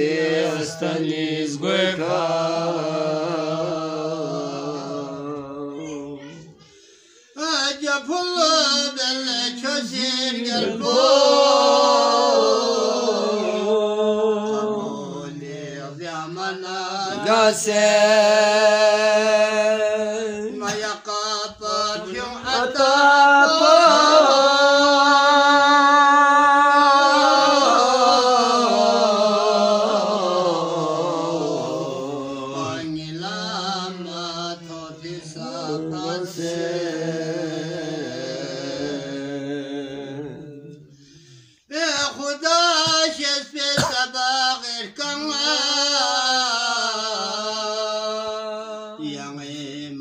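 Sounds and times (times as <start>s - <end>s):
man singing unaccompanied: 7.4s - 11.8s, 13.2s - 40.9s, 41.7s - 50.0s.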